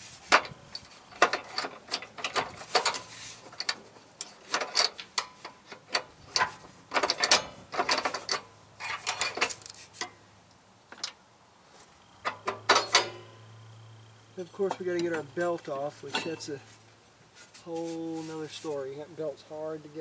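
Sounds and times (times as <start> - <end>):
metal spring clip clicking and rattling: 0.3 - 9.8, 12.2 - 13.2.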